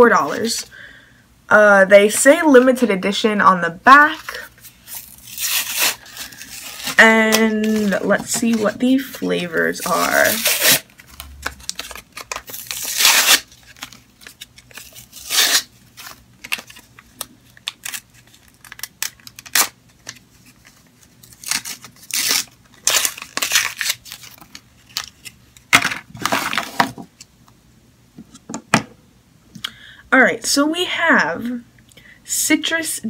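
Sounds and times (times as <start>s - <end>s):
packaging crinkling: 4.6s - 27.2s
packaging tearing: 4.8s - 8.7s, 9.8s - 25.4s.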